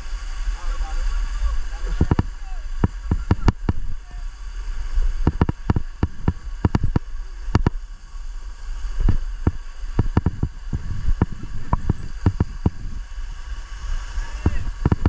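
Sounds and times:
steady low rumble: 0.0s - 15.0s
sharp clicks and knocks: 2.0s - 3.8s, 5.2s - 7.8s, 9.1s - 12.8s, 14.4s - 15.0s.

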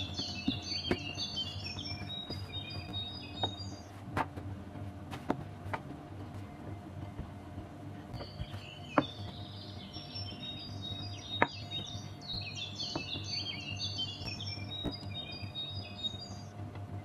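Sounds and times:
small birds chirping: 0.0s - 4.0s, 8.1s - 16.5s.

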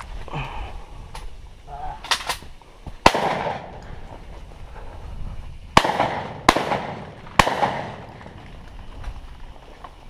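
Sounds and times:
shotgun shots echoing: 3.0s - 3.8s, 5.8s - 8.4s.

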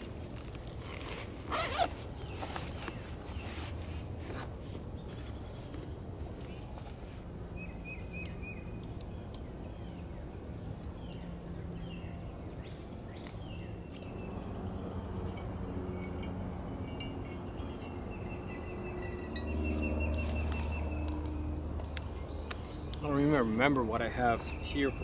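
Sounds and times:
camping gear clicks and rustles: 0.0s - 10.1s, 16.8s - 23.6s
small birds chirping and trilling: 5.0s - 16.2s, 16.8s - 25.0s.

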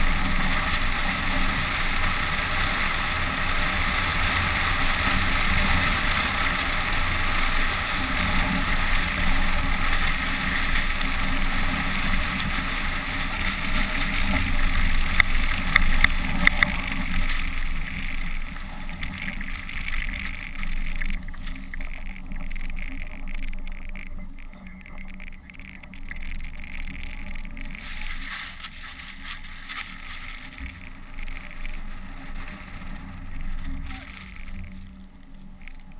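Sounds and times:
tyre and engine noise: 0.0s - 35.9s
sharp clicks: 13.8s - 35.9s.

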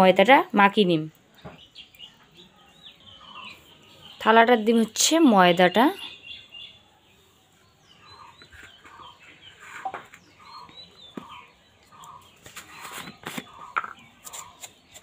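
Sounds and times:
small birds chirping: 0.0s - 15.0s
hen clucking: 7.9s - 15.0s.

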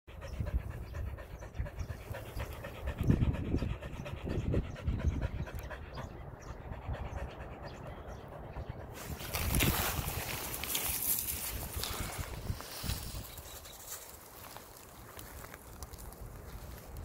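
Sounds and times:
dog panting: 0.1s - 10.6s.

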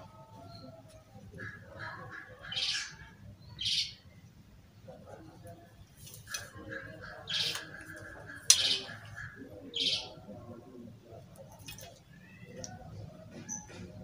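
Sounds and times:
soft handling noise: 5.4s - 6.7s.

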